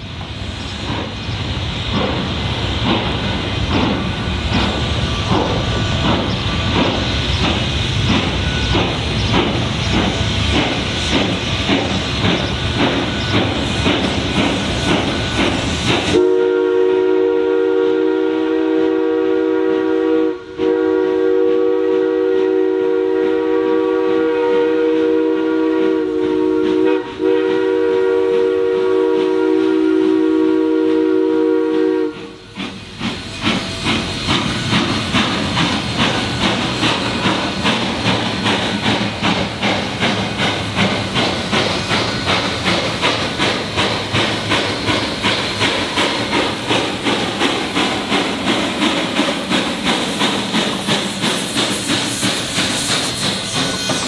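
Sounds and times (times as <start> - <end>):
steam locomotive working: 0.0 - 54.0
steam whistle chord: 16.1 - 32.5.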